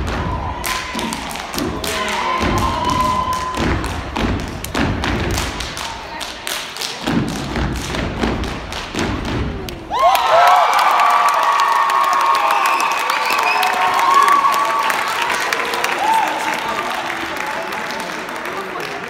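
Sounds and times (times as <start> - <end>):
hand claps: 0.6 - 19.0
stomps on wooden stage floor: 2.4 - 5.7, 7.0 - 9.7.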